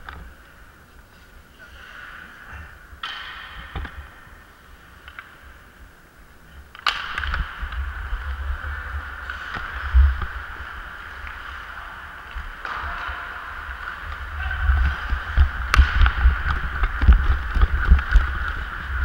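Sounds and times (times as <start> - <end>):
hockey stick clacks: 3.0 - 5.8, 6.7 - 19.0
skates scraping ice: 6.8 - 19.0
wind rumble on microphone: 13.7 - 19.0
loud sharp crack: 15.6 - 16.6.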